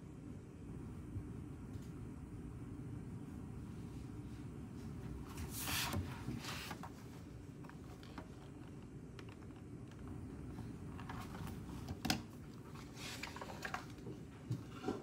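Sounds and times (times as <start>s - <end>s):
notebook pages rustling: 5.3s - 14.2s.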